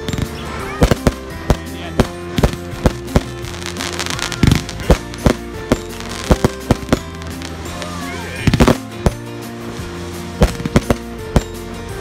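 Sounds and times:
fireworks bangs and crackling: 0.0s - 12.0s
music with held notes: 0.0s - 12.0s.

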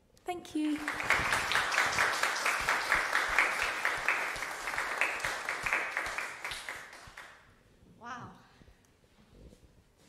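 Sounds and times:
audience applauding: 0.6s - 7.4s.

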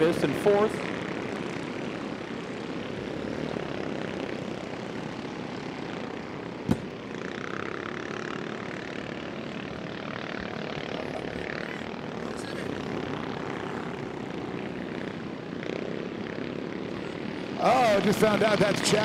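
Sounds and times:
kart engines racing: 0.0s - 19.0s
sharp knock: 6.7s - 6.9s.

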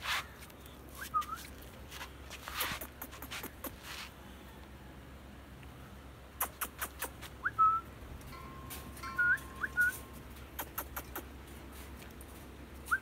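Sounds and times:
paws clicking on concrete: 0.2s - 4.2s, 6.4s - 7.4s, 9.8s - 12.4s.

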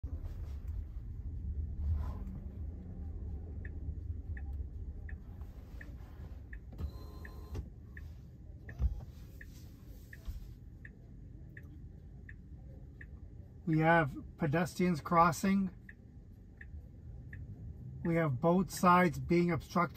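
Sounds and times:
low rumble: 0.0s - 6.7s
turn signal ticking: 0.1s - 19.9s.

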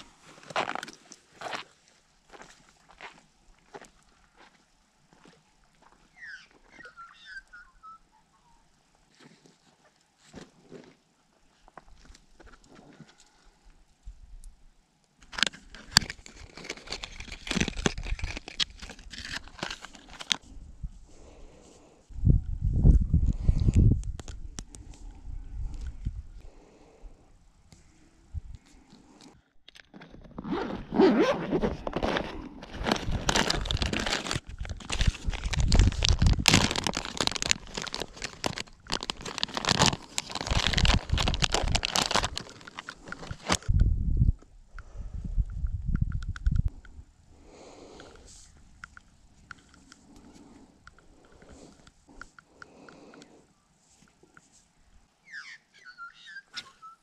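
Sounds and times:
plastic pack crinkling and clicking: 15.2s - 20.4s, 31.7s - 43.7s.

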